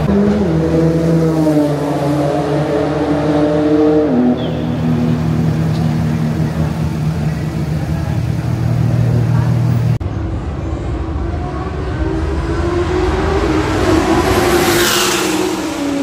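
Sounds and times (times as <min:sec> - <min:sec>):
car engine idling: 0:04.4 - 0:10.0.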